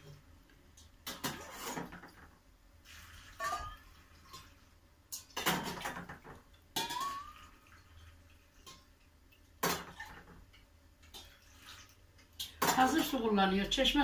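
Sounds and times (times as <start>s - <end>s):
metal bowl clinking against glass: 3.4s - 3.9s, 6.8s - 7.5s.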